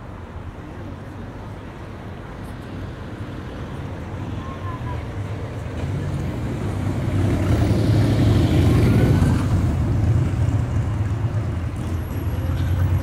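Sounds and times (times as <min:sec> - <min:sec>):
vehicle driving past: 0:05.8 - 0:12.3.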